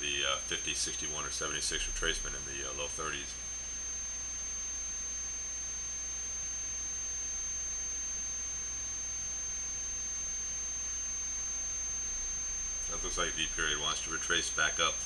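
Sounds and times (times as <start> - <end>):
low electrical hum: 0.0 - 15.0
thin high-pitched whine: 0.0 - 15.0
electrical hiss: 11.2 - 15.0.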